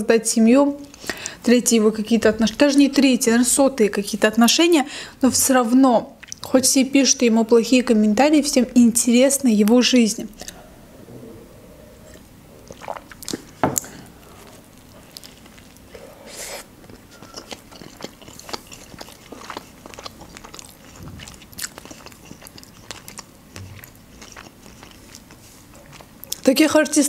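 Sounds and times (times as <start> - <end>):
person chewing with mouth closed: 6.2 - 6.4, 10.3 - 10.9, 11.8 - 26.5.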